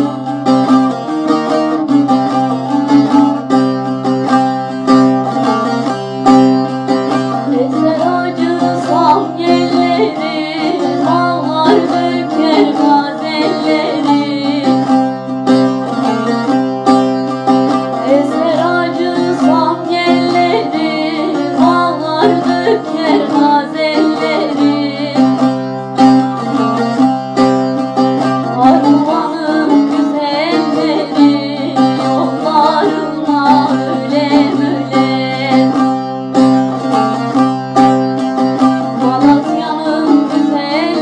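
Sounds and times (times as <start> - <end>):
person singing ornamented melody: 0.0 - 0.8, 7.2 - 16.0, 17.9 - 26.9, 28.4 - 36.1, 38.8 - 41.0
plucked string instrument: 0.0 - 41.0.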